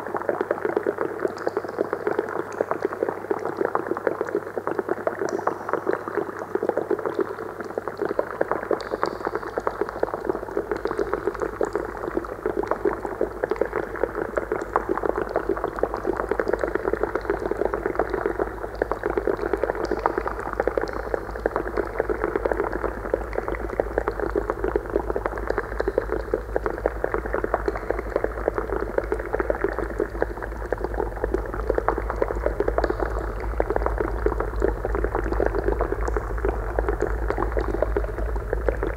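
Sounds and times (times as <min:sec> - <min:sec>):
water bubbling in glass vessels: 0:00.2 - 0:38.9
steady low hum: 0:16.8 - 0:38.9
deep drone: 0:29.9 - 0:38.9.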